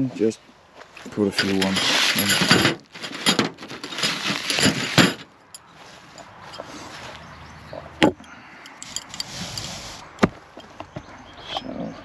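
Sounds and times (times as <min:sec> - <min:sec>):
metal tent pegs clinking: 0:01.1 - 0:06.7, 0:08.1 - 0:10.9
plastic bag crinkling: 0:01.8 - 0:05.0.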